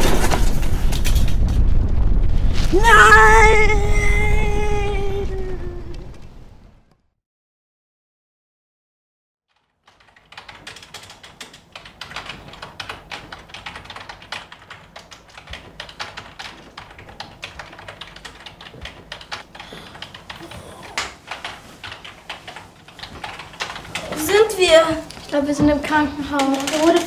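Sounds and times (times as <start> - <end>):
rapid clicking and tapping: 9.5 - 27.0.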